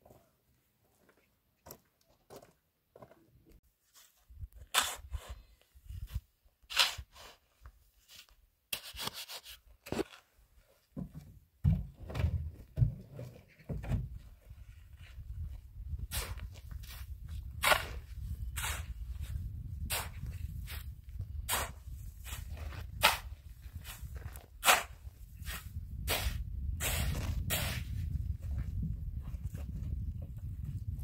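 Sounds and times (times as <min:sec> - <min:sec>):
shovel scraping sand and gravel: 0:03.9 - 0:10.2, 0:16.0 - 0:28.1.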